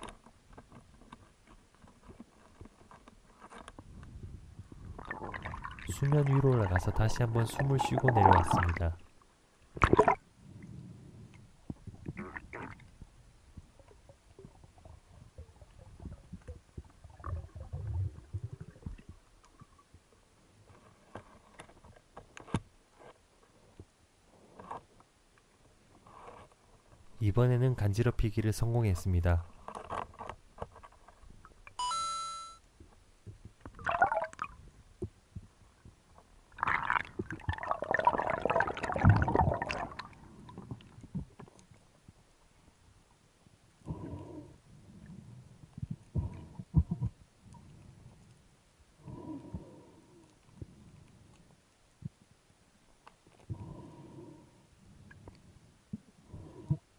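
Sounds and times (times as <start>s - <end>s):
underwater rumble of water: 3.8s - 20.7s, 33.2s - 52.4s.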